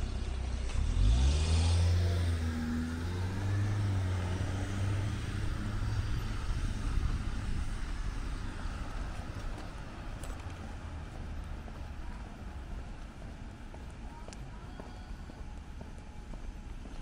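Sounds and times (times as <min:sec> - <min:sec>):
car engine passing by: 0:00.0 - 0:12.0.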